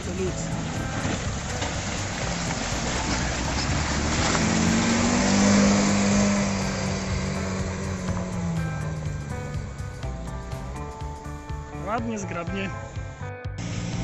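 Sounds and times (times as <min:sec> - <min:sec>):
car engine working hard: 0:00.0 - 0:14.0
water and ice splashing: 0:00.1 - 0:07.4.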